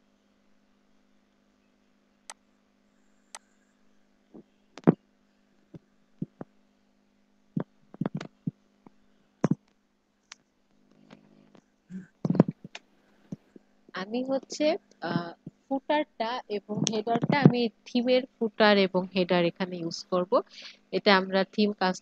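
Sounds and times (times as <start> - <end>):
faint low hum: 0.0 - 22.0
sharp taps and knocks: 8.0 - 8.5, 12.3 - 13.5, 16.8 - 17.6.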